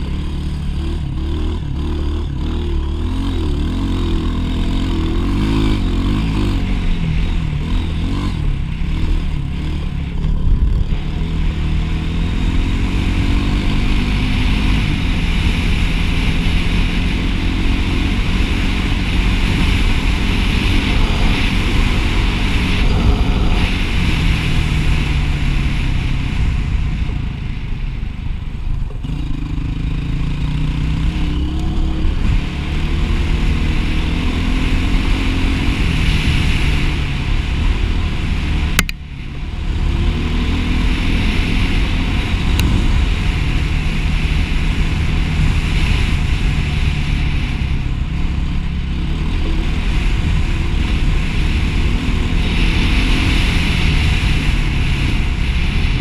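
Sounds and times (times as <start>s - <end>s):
dirt bike engine accelerating: 0.0s - 56.0s
sharp click: 38.8s - 39.0s.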